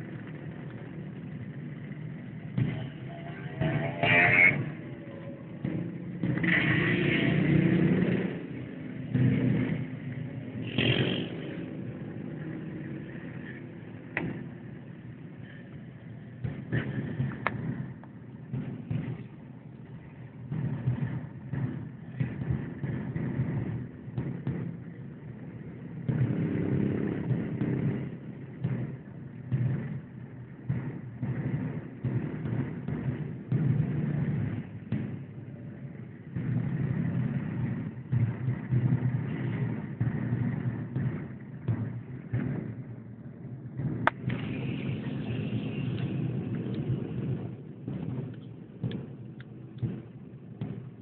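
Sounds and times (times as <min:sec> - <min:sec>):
motorcycle engines revving past: 0:00.0 - 0:15.2
car engine and road noise: 0:00.0 - 0:51.0
loud motorcycle engine drone: 0:00.0 - 0:51.0.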